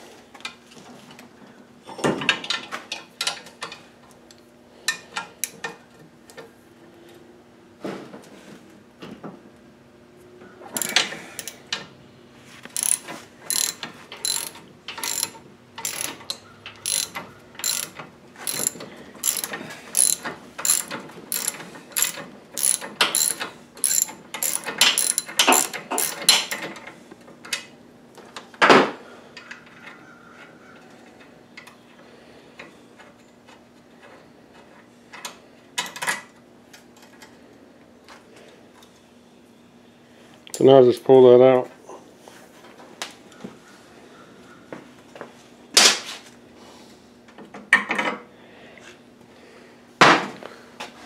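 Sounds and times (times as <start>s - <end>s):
ratchet wrench clicking: 10.8s - 11.6s, 12.7s - 26.6s.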